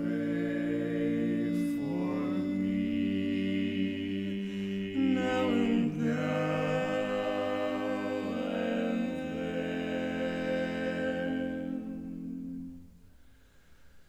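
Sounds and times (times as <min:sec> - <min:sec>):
barbershop quartet singing: 0:00.0 - 0:12.8.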